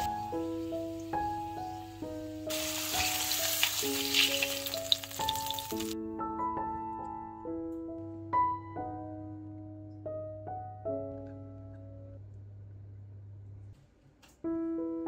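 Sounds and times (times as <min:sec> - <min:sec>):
meat sizzling in a frying pan: 0:00.0 - 0:06.0
background piano music: 0:00.0 - 0:12.8, 0:14.3 - 0:15.0.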